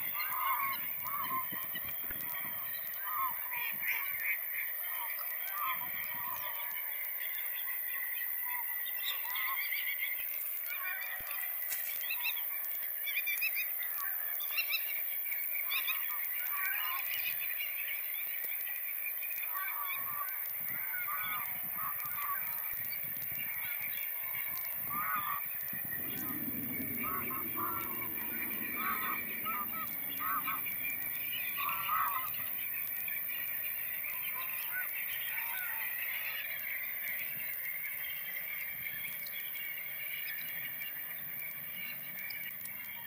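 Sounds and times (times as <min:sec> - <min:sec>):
geese honking: 0:24.8 - 0:33.4.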